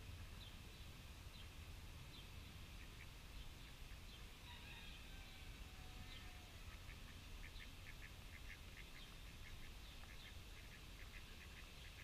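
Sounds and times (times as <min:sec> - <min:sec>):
ducks calling faintly: 0:02.6 - 0:12.0.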